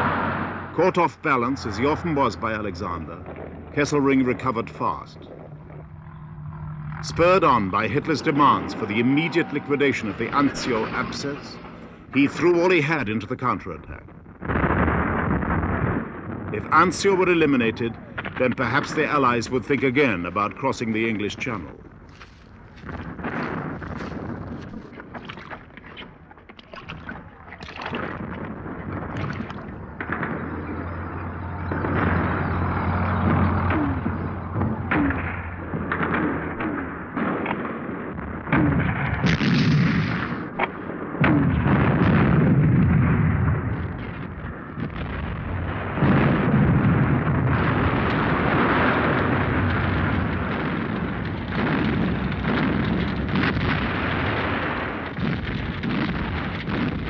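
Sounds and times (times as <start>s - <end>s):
low steady drone: 0.0s - 12.5s
artillery explosions: 0.0s - 57.0s
gunshots: 0.0s - 57.0s.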